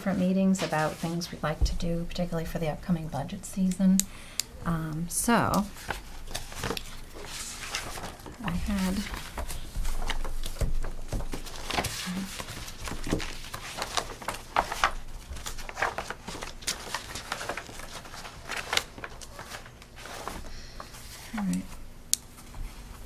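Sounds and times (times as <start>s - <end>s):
paper rustling: 5.6s - 21.7s.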